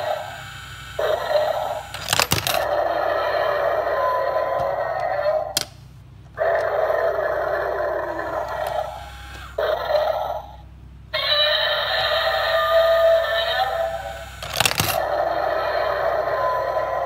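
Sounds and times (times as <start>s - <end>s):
toy motor whirring: 0.0s - 3.8s, 7.6s - 10.2s, 11.2s - 17.0s.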